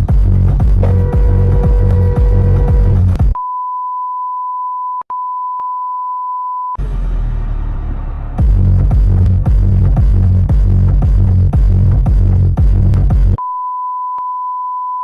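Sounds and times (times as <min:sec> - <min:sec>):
electronic music with heavy beat: 0:00.0 - 0:03.4, 0:06.8 - 0:13.4
steady single-pitch beep: 0:03.4 - 0:06.8, 0:13.4 - 0:15.0.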